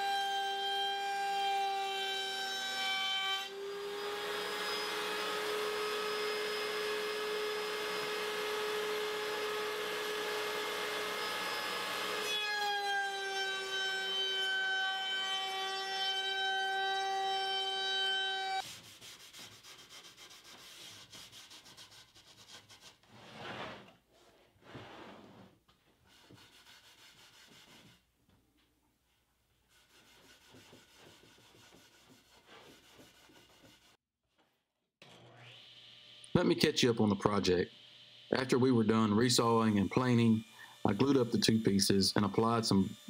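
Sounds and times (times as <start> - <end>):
router whining and cutting wood: 1.6 - 18.6, 35.0 - 43.0.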